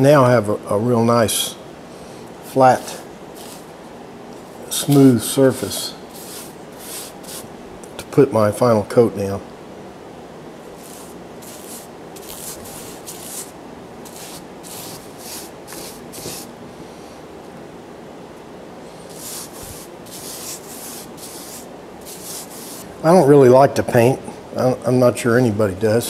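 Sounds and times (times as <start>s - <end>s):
paintbrush bristles swishing: 2.8s - 3.7s, 6.1s - 7.5s, 10.8s - 16.5s, 19.0s - 22.9s.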